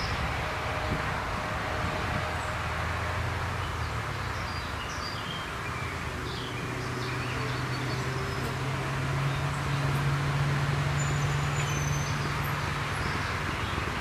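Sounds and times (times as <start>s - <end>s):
vehicle rumble: 0.0s - 14.0s
small birds chirping: 3.6s - 10.1s.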